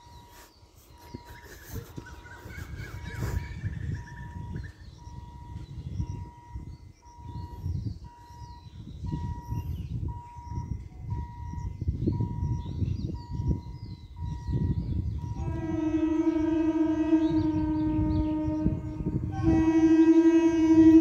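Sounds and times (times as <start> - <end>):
faint bird chirps: 0.0 - 15.4
wind buffeting microphone: 0.0 - 21.0.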